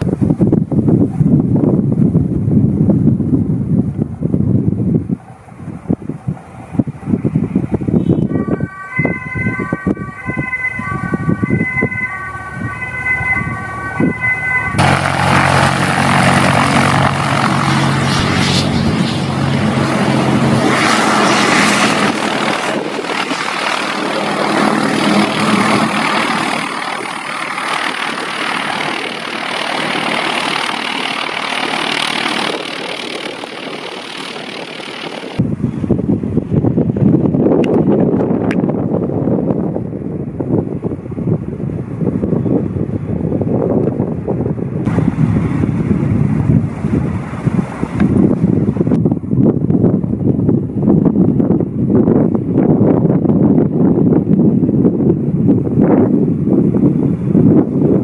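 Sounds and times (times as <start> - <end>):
turboprop engine running: 0.0 - 58.0
wind noise: 0.0 - 58.0
two-tone siren: 8.0 - 15.2.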